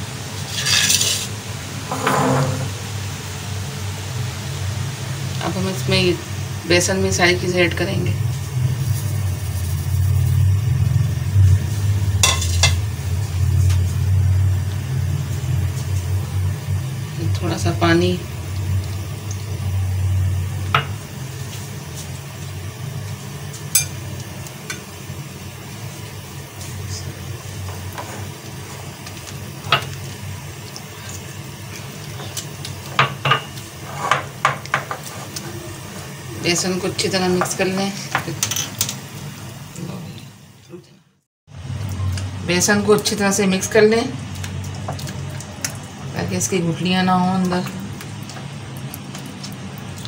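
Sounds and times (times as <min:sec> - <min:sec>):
low motor hum: 0:07.4 - 0:32.2
whisk stirring batter: 0:08.8 - 0:10.6.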